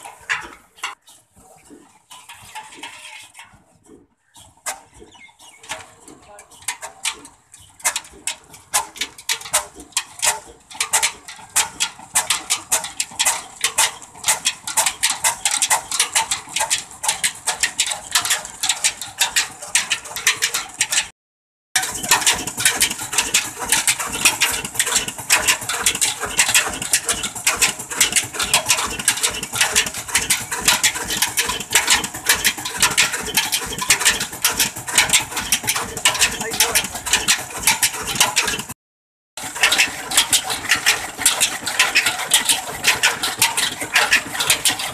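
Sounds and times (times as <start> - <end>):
stationary diesel engine running: 21.8 - 38.8, 39.4 - 44.9.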